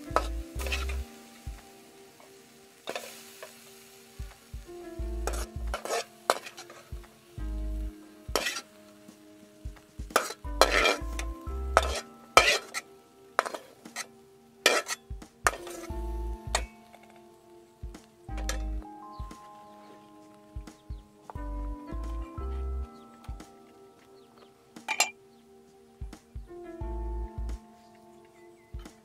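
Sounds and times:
meat sizzling in pan: 0:00.2 - 0:07.3.

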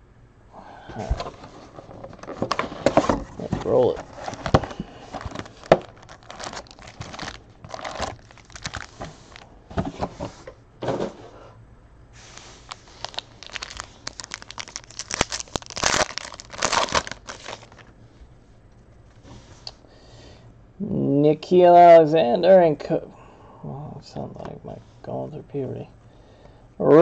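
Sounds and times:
card packs rustling and crinkling: 0:01.0 - 0:10.5, 0:12.2 - 0:18.0
foil wrapper tearing: 0:03.7 - 0:09.4, 0:12.2 - 0:17.9.

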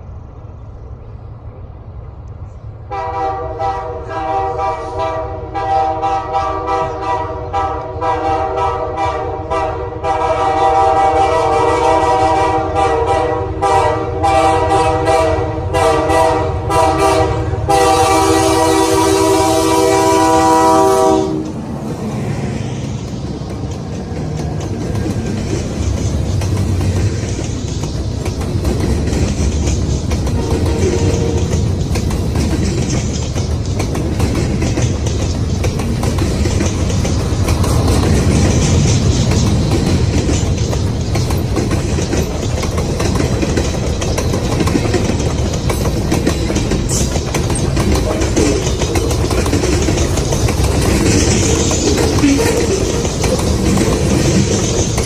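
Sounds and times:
freight cars rumbling and rattling: 0:00.0 - 0:55.0
locomotive air horn blasts: 0:02.9 - 0:21.6, 0:30.4 - 0:31.6.

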